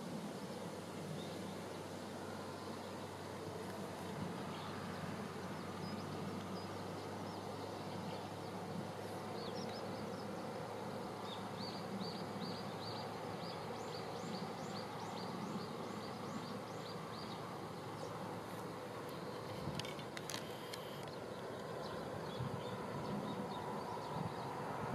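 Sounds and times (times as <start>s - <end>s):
low outdoor rumble: 0.0s - 24.9s.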